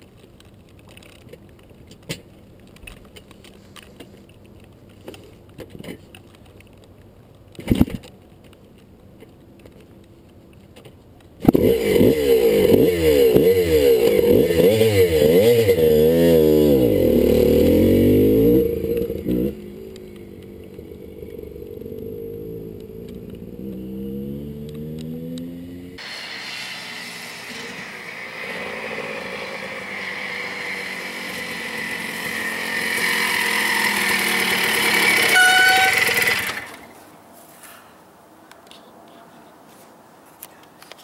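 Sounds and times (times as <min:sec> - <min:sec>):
dirt bike engine revving: 0:11.5 - 0:36.9.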